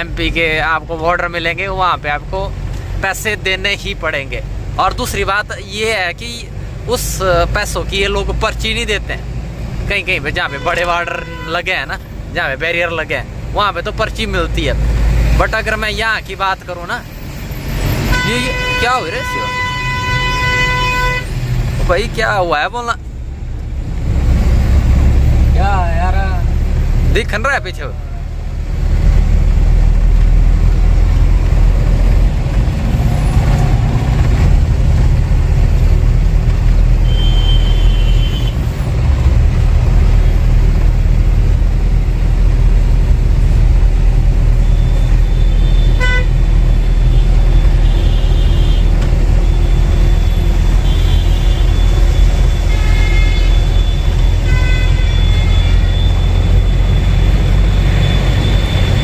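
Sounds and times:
truck engine and road rumble: 0.0s - 59.0s
vehicle horns tooting: 10.3s - 11.9s, 18.0s - 21.5s, 37.0s - 38.7s, 44.6s - 59.0s.

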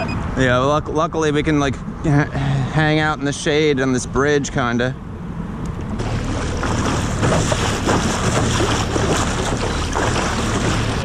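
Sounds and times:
choppy water against boat: 5.8s - 11.0s.

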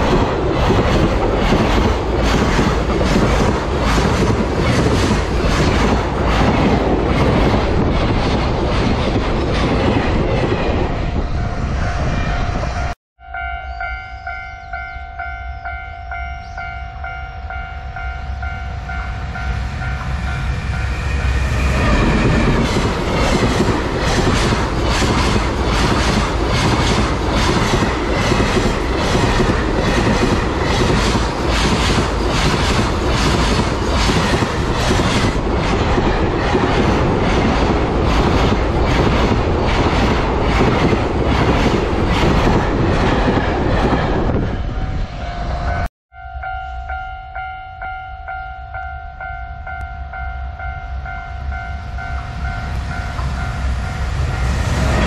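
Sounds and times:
train wheels clicking over rail joints: 0.0s - 10.6s, 21.7s - 44.0s
freight train passing: 0.0s - 55.0s.

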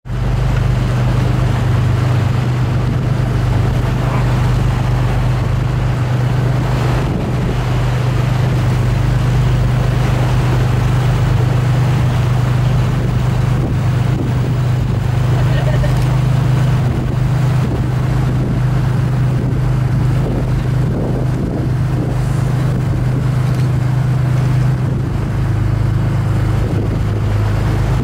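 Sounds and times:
boat engine humming: 0.0s - 28.0s
steady rushing noise: 0.0s - 28.0s.

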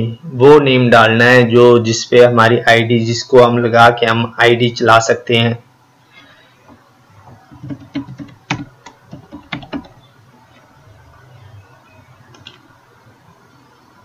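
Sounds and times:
keyboard typing: 6.6s - 10.7s, 12.3s - 12.7s.

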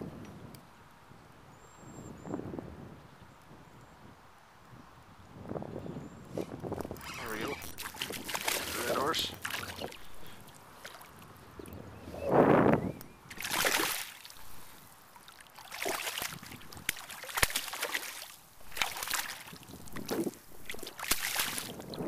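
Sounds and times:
fish splashing in water: 7.0s - 11.2s, 13.3s - 22.0s
sharp water slaps: 7.7s - 11.2s, 13.3s - 14.6s, 15.2s - 22.0s.

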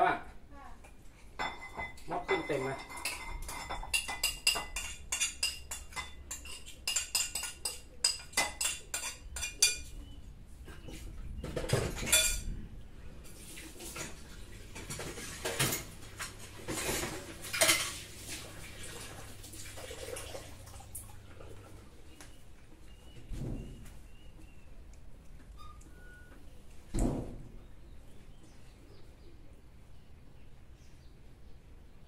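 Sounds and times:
dishes scraping and clattering: 1.3s - 12.6s, 13.2s - 20.4s
dishes and cutlery clinking: 1.4s - 12.6s, 13.8s - 19.1s.

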